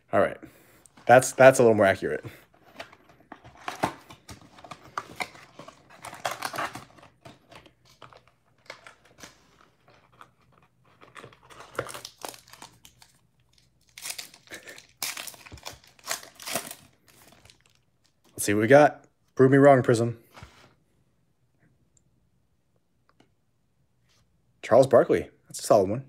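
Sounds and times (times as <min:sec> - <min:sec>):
foil wrappers crinkling: 0:03.5 - 0:17.8
pack being torn open: 0:11.0 - 0:17.8.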